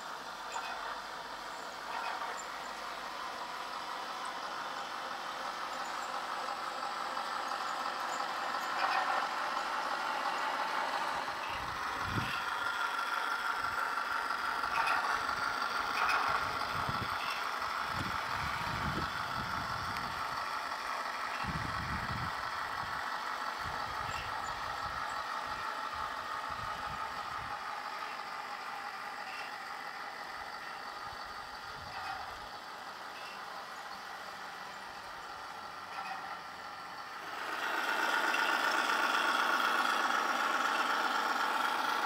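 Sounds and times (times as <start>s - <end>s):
low rumbles: 0.0s - 29.1s
electric motor whine: 0.0s - 33.4s
metal tracks rattling: 0.0s - 42.0s.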